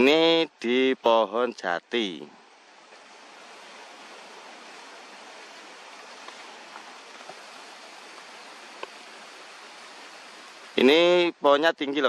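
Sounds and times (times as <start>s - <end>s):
outdoor background hiss: 0.0s - 12.0s
faint ticks: 6.1s - 7.5s, 8.1s - 9.1s.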